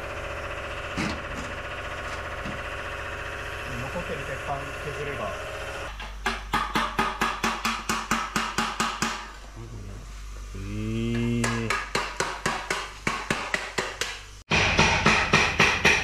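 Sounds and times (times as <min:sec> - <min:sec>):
man humming low: 0:09.6 - 0:11.9.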